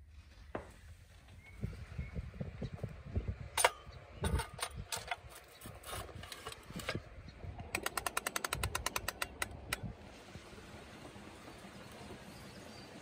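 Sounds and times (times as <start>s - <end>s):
knocks and clicks: 7.6s - 9.9s
ratchet clicking: 7.7s - 9.9s.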